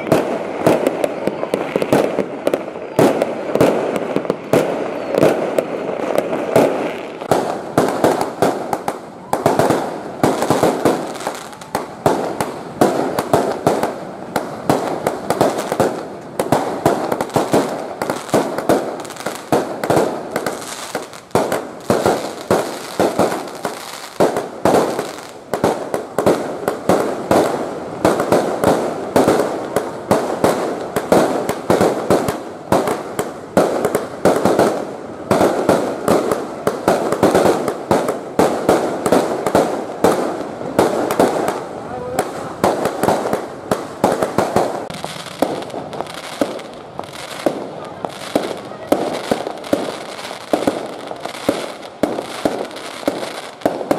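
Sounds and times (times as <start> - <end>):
fireworks bangs and crackles: 0.0 - 53.9.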